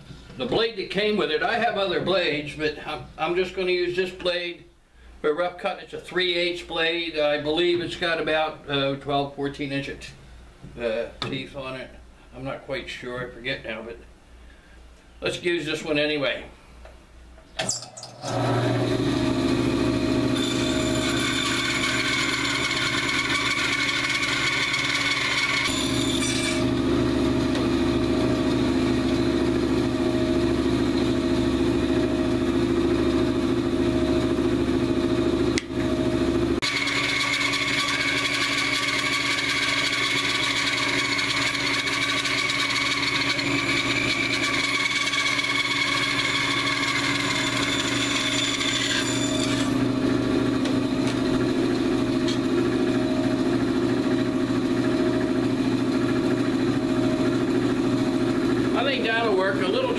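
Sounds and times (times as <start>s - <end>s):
band saw cutting log: 18.2s - 34.7s, 35.5s - 59.9s.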